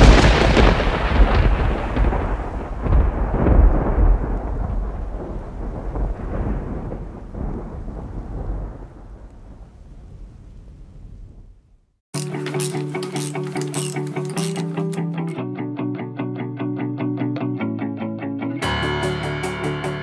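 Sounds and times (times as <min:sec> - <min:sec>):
rolling thunder rumble: 0:00.0 - 0:11.8.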